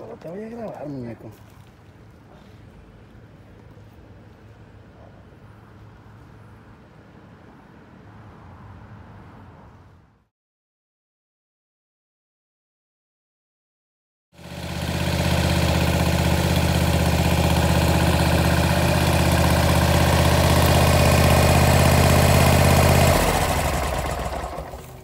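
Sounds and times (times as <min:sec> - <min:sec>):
steady engine hum: 0:14.4 - 0:25.0.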